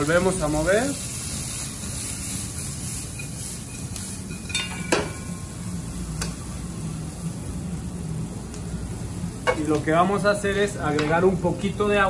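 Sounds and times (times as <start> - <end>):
vegetables sizzling in a wok: 0.0 - 12.0
metal spatula clinking on pan: 4.3 - 5.2.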